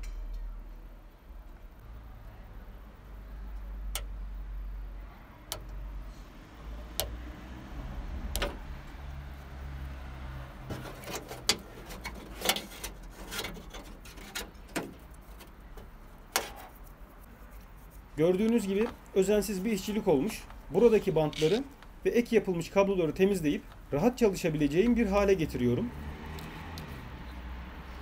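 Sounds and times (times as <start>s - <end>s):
sharp clicks of plastic parts: 3.8s - 4.2s, 5.4s - 5.8s, 6.9s - 7.2s, 8.3s - 8.6s
wires rustling: 5.4s - 28.0s.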